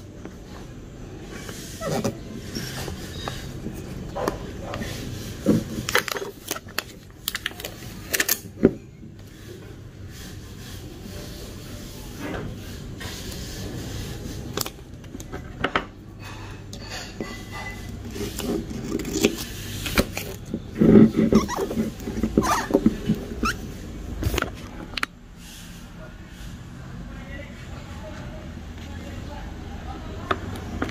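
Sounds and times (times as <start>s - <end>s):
foil bag crinkling: 5.3s - 8.4s.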